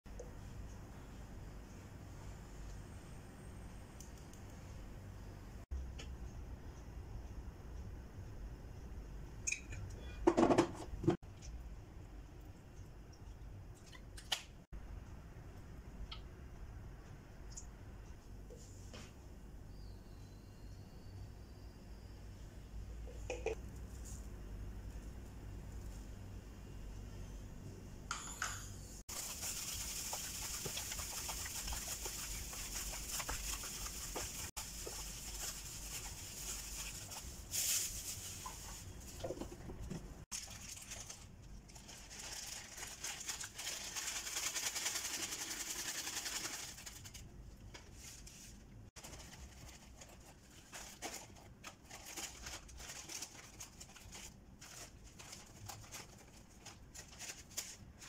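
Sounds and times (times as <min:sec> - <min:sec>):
plastic bags crinkling: 0:40.3 - 0:47.2, 0:49.0 - 0:58.0.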